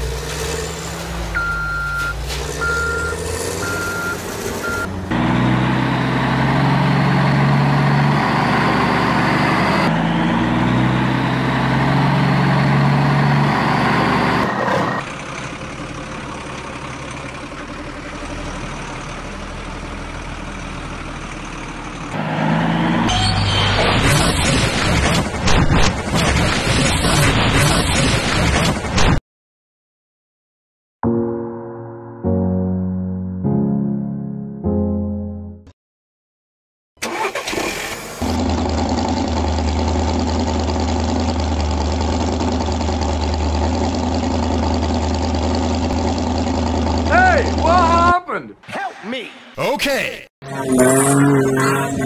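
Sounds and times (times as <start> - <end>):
truck engine humming: 0.0 - 22.9
reversing beeper: 1.4 - 4.9.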